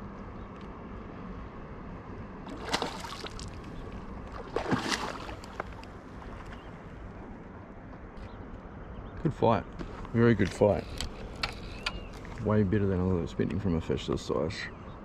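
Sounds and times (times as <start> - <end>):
fish splashing in water: 2.4 - 6.6.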